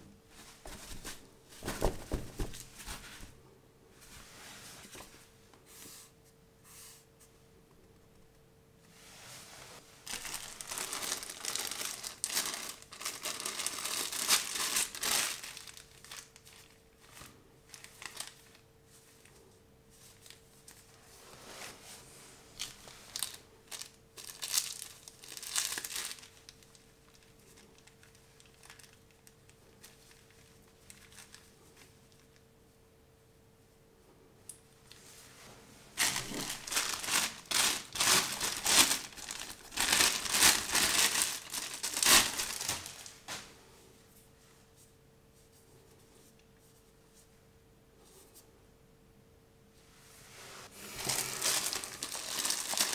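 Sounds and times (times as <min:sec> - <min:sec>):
faint steady hum: 0:00.0 - 0:52.9
plastic bags crinkling: 0:10.0 - 0:19.3, 0:22.6 - 0:32.4, 0:36.0 - 0:43.4, 0:50.8 - 0:52.9.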